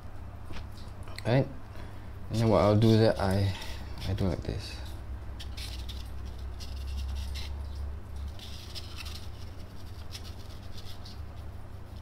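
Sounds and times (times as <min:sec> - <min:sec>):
steady low hum: 0:00.0 - 0:12.0
sandpaper scratching foam: 0:05.4 - 0:07.6, 0:08.3 - 0:12.0.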